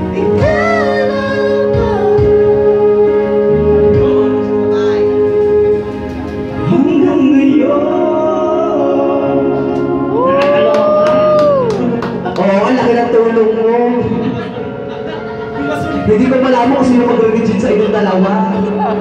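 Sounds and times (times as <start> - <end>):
duet singing into microphones: 0.0 - 5.8, 6.6 - 12.4
amplified accompanying music: 0.0 - 19.0.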